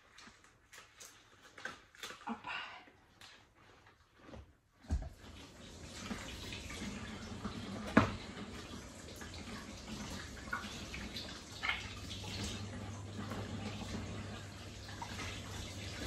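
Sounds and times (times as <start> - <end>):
tap water running into bowl: 4.9 - 16.0.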